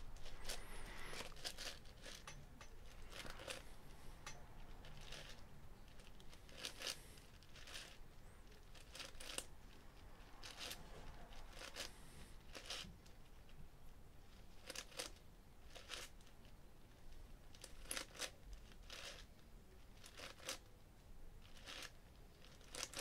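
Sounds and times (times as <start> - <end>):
puzzle cube clicking and sliding: 0.0 - 9.5, 10.4 - 13.2, 14.6 - 16.3, 17.5 - 19.3, 20.0 - 20.7, 21.4 - 23.0.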